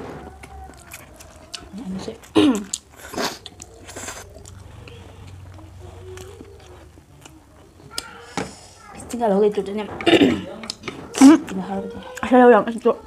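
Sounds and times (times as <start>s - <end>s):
slurping and chewing noodles: 0.2s - 8.7s.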